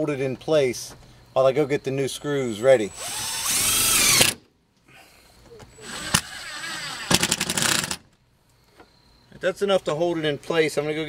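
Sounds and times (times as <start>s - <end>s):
cordless drill driving a screw: 2.9s - 4.4s, 5.8s - 8.0s
drill clutch rapid clicking: 3.0s - 4.4s, 5.8s - 8.1s.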